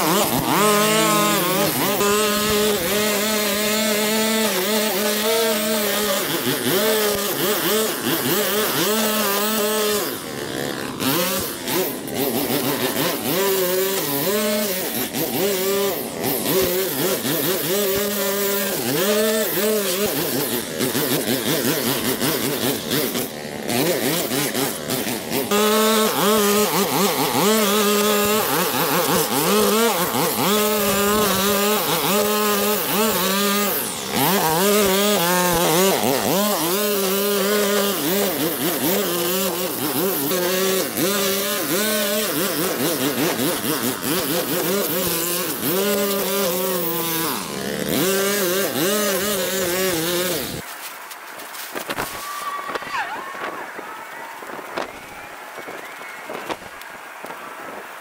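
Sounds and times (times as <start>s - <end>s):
small gasoline engine running: 0.0s - 50.8s.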